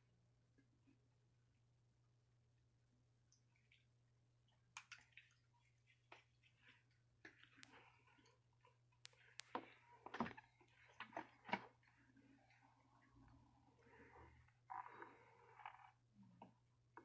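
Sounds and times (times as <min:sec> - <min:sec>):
faint ticks and clicks: 0:04.5 - 0:12.0.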